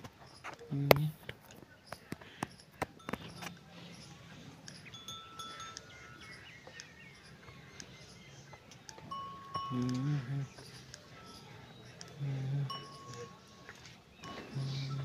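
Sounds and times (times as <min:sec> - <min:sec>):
small metal bells tinkling: 0:02.6 - 0:15.0
sharp clicks: 0:06.6 - 0:09.1, 0:11.8 - 0:12.2.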